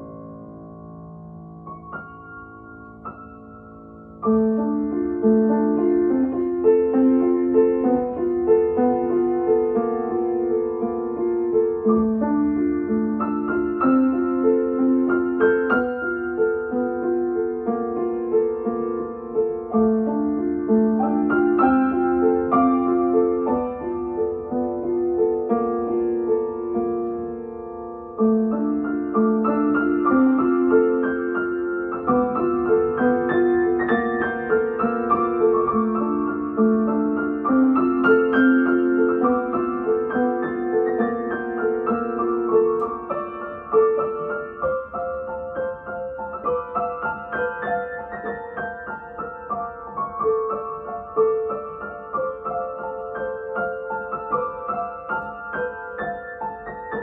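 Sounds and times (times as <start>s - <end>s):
upright piano playing: 0.0s - 57.0s.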